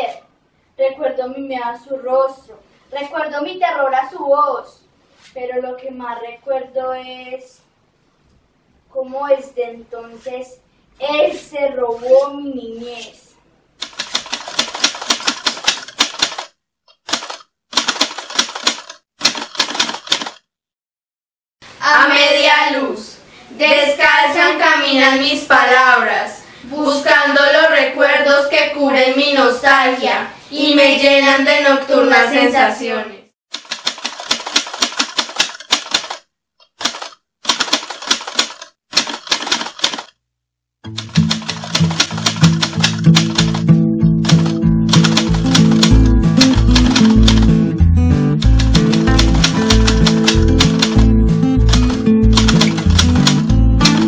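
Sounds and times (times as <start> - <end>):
keyboard typing clicks: 13.8 - 20.4, 33.5 - 40.1, 40.9 - 47.5, 48.4 - 54.0
typewriter keys clacking: 13.8 - 20.4, 33.5 - 40.1, 40.9 - 47.5, 48.4 - 51.1, 51.7 - 54.0.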